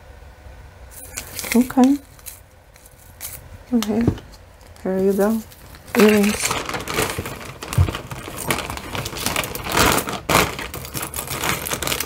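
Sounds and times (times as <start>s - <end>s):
rustling: 0.9s - 3.5s, 4.1s - 12.0s
metal jewelry clinking: 8.2s - 12.0s.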